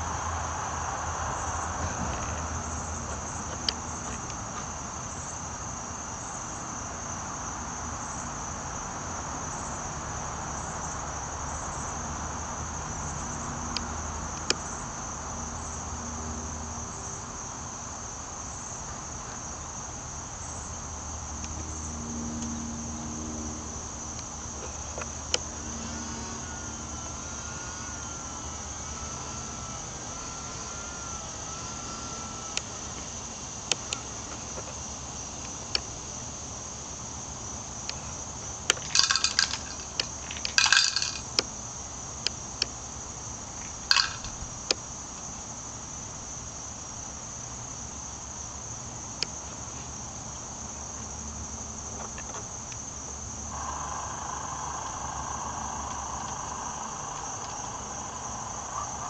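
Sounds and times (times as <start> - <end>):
insects chirring: 0.0 - 59.0
faint wavering whine: 20.4 - 36.5, 37.6 - 47.9, 53.3 - 59.0.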